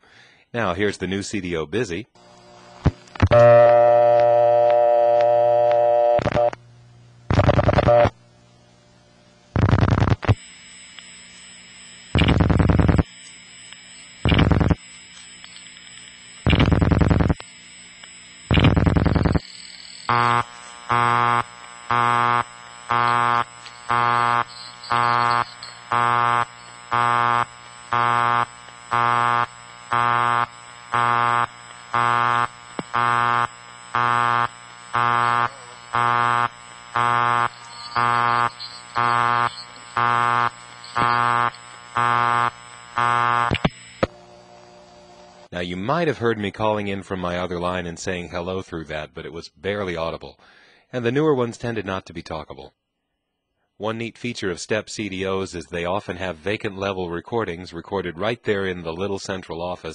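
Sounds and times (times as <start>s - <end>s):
irregular buzzy bursts: 2.2s - 6.6s, 7.3s - 8.2s, 9.5s - 45.6s
buzzy telephone tone: 2.2s - 6.7s, 7.3s - 8.2s, 9.5s - 45.5s
faint high whine: 2.2s - 45.6s
pulsing telephone busy signal: 3.2s - 6.6s, 7.3s - 8.2s, 9.6s - 15.5s, 16.2s - 44.1s.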